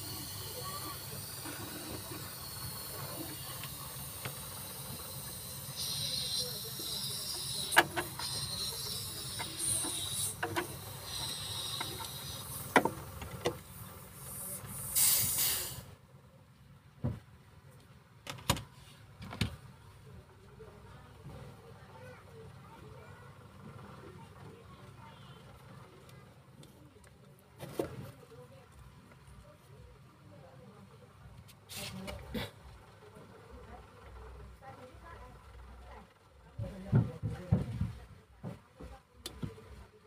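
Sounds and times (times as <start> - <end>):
gas hissing from tube: 0.0 - 16.0.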